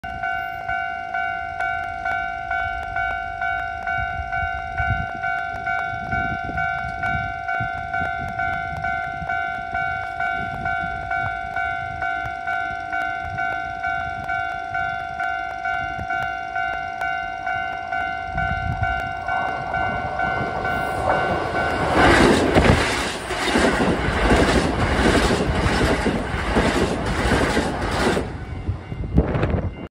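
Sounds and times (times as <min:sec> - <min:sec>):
electric train passing: 0:00.0 - 0:29.9
level crossing bell ringing: 0:00.2 - 0:22.0
train wheels clattering on rails: 0:04.7 - 0:29.9.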